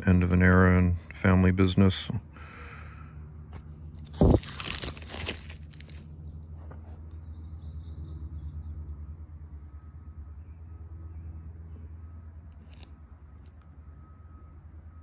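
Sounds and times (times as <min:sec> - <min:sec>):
plastic sleeves crinkling: 0:04.0 - 0:06.1.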